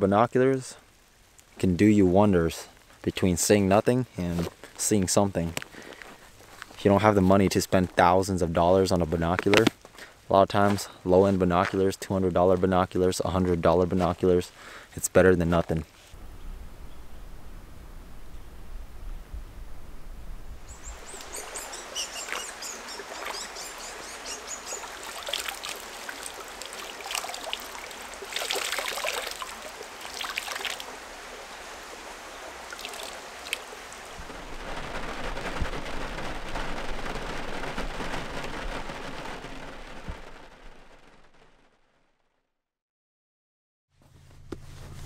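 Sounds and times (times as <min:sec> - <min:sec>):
rain falling: 0:00.0 - 0:16.0, 0:20.4 - 0:41.8
creek water trickling: 0:20.7 - 0:34.2
water splashing: 0:20.8 - 0:40.3.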